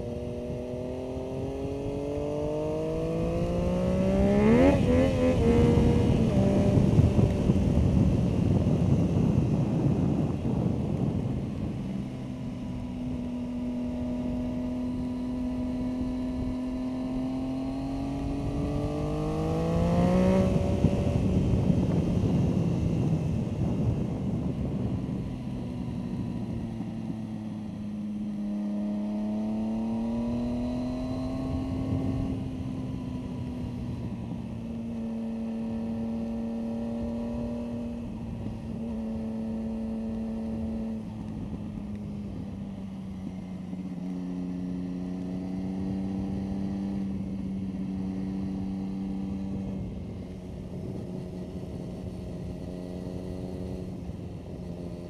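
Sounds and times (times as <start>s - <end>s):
wind on microphone: 0.0s - 35.9s
motorcycle engine revving: 0.0s - 55.0s.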